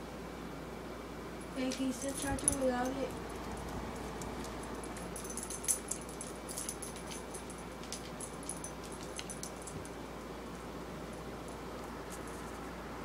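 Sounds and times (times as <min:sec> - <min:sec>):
steady low hum: 0:00.0 - 0:13.0
light metallic jingling: 0:01.4 - 0:10.0.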